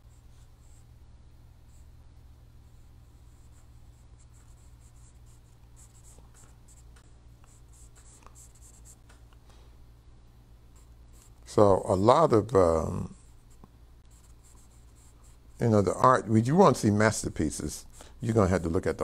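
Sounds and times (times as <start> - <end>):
low steady hum: 0.0 - 19.0
pen scratching on paper: 2.6 - 9.1, 13.2 - 15.5.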